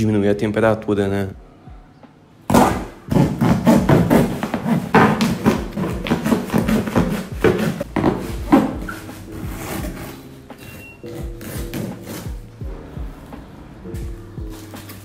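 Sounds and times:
packing tape tearing off cardboard: 0:02.5 - 0:07.8, 0:08.5 - 0:12.4
cardboard flaps scraping: 0:02.5 - 0:12.4.

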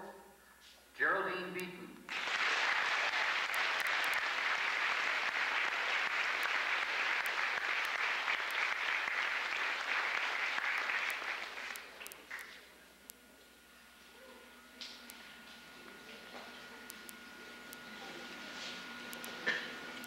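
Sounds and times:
crowd applause: 0:02.1 - 0:12.6.

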